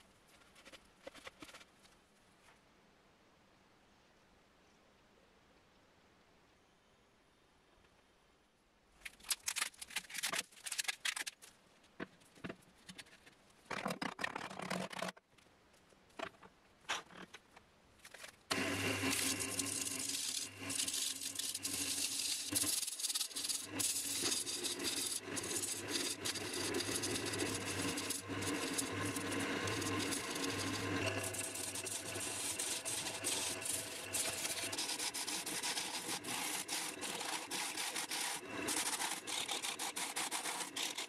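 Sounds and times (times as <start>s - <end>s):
clatters scrapes and knocks: 0.2s - 2.0s, 9.0s - 15.5s, 16.1s - 41.0s
gouge shaving spinning wood: 18.5s - 41.0s
wood lathe motor hum: 18.5s - 41.0s.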